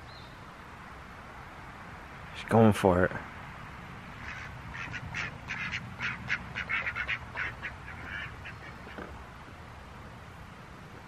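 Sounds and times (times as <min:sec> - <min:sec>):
poultry calling: 0:04.2 - 0:09.1.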